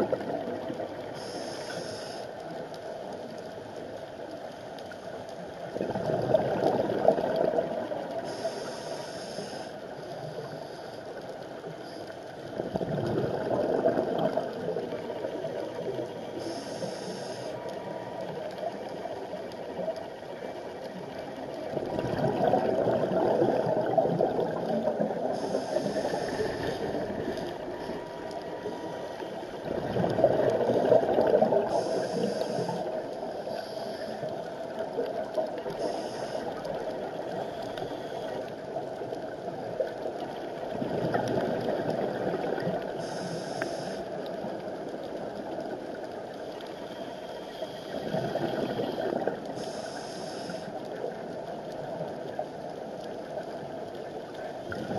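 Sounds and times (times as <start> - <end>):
bubbling gurgle of air: 0.0 - 2.3, 5.6 - 10.6, 12.4 - 46.7, 47.7 - 54.9
diver breathing through regulator: 1.2 - 2.3, 8.2 - 9.8, 16.4 - 17.6, 25.3 - 27.2, 31.7 - 34.3, 35.8 - 36.6, 43.0 - 44.1, 46.8 - 50.8
regulator hissing: 16.4 - 17.6, 25.3 - 26.8, 31.7 - 32.9, 49.6 - 50.7.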